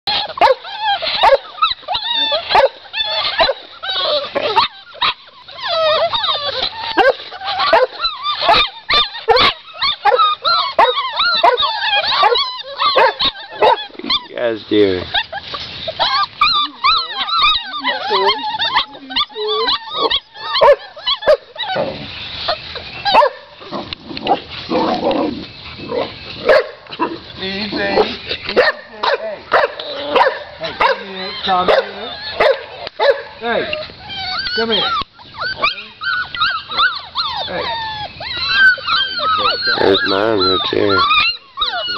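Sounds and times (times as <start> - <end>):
puppy barks: 0.1 - 5.2, 7.0 - 13.9, 16.6 - 21.8, 23.1 - 23.5, 25.9 - 27.2, 27.9 - 33.4
puppies yipping and whining: 0.1 - 41.9
scuffling noise: 14.9 - 33.1.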